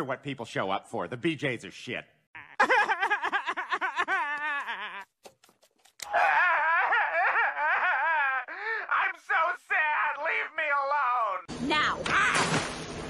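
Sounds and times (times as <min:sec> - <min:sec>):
cartoon voice laughing: 0:02.4 - 0:05.1.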